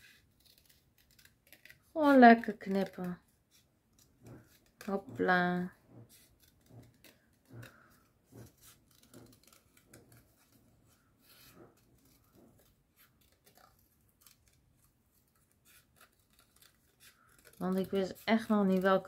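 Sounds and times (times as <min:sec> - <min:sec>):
scissors snipping card: 0:15.4 - 0:19.0.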